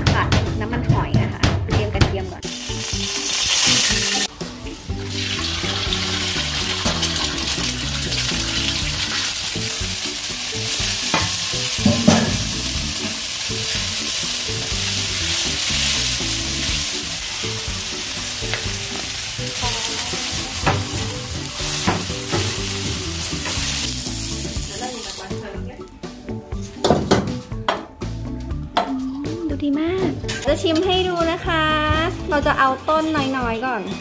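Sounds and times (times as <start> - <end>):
food sizzling in hot oil: 2.4 - 26.0
spatula scraping and knocking wok: 5.0 - 25.2.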